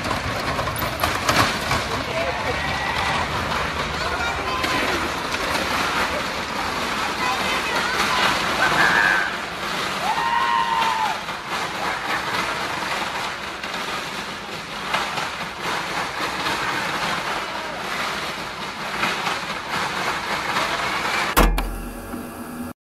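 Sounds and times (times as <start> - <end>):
mountain bike rattling: 0.0 - 21.4
loud knock: 21.4 - 21.9.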